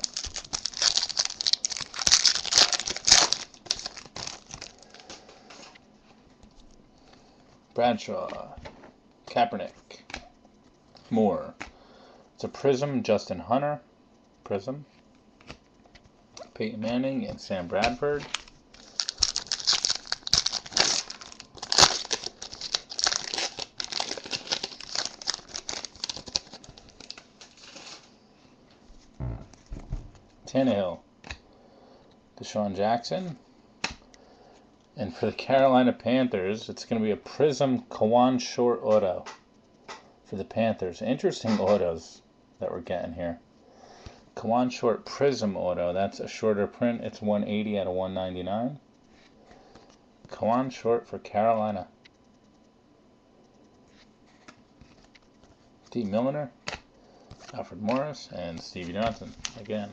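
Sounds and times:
wrapper tearing and crinkling: 0.0s - 5.1s, 18.2s - 28.0s.

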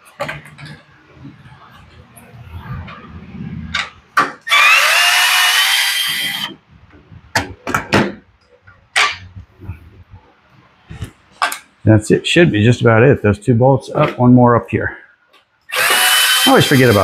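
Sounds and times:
cordless drill motor running: 4.5s - 6.5s, 15.7s - 17.0s.

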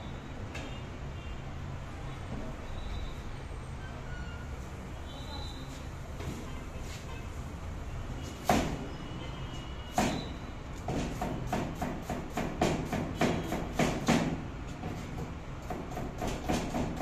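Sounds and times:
knife chopping on cutting board: 10.9s - 14.4s.

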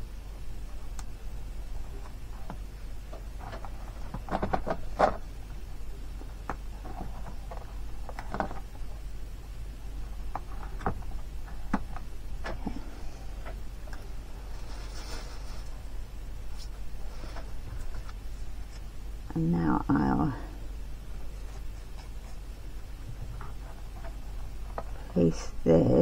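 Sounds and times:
faint low hum: 0.0s - 26.0s
paper rustling and clicking: 2.0s - 5.2s.

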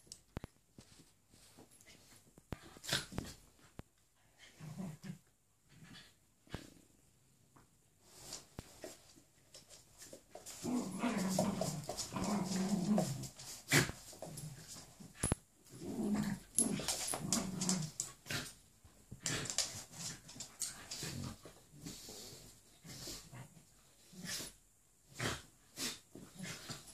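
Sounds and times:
dogs play-growling: 1.9s - 6.8s, 10.0s - 26.9s.

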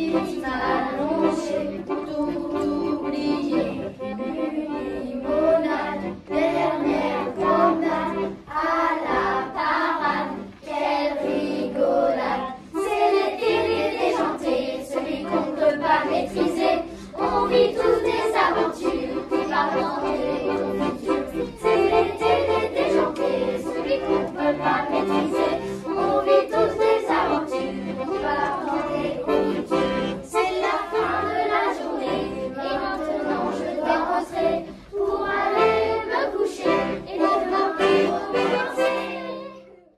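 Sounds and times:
children's choir singing: 0.0s - 39.9s
sustained instrumental chords: 12.2s - 39.5s.

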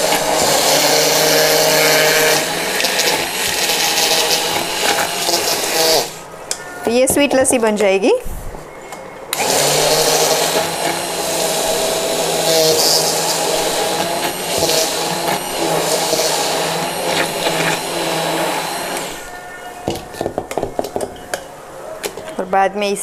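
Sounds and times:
immersion blender running: 0.0s - 6.2s, 9.4s - 19.3s.

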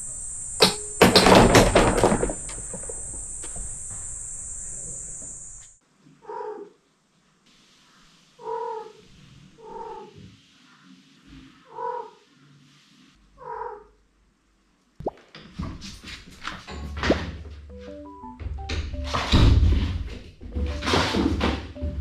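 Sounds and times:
crickets chirring: 0.0s - 5.8s
cat meowing: 6.2s - 6.7s, 13.4s - 13.9s.

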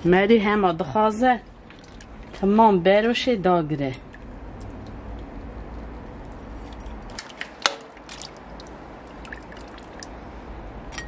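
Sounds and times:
liquid dripping in a pot: 1.7s - 2.4s, 7.6s - 10.2s.

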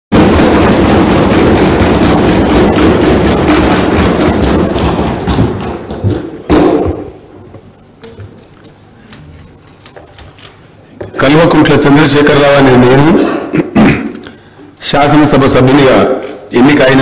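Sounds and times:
sharp knock: 0.1s - 7.2s
people thumping wooden desks: 0.1s - 11.7s.

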